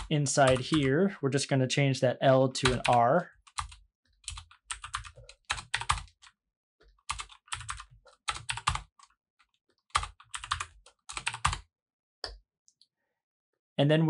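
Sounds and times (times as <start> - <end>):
typing on computer keyboard: 0.0 - 0.9, 2.6 - 6.4, 7.1 - 9.1, 9.9 - 11.6.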